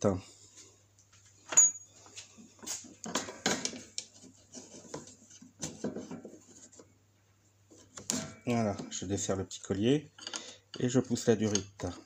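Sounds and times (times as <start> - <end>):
hand tool clicks and rattles: 10.2 - 12.0.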